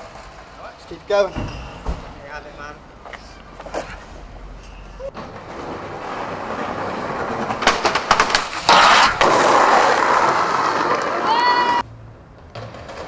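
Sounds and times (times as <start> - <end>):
skateboard wheels rolling on tarmac: 0.0 - 1.3, 2.5 - 13.0
skateboard grinding on metal rail: 5.1 - 11.8
skateboard clacks: 5.2 - 11.8, 12.4 - 13.0.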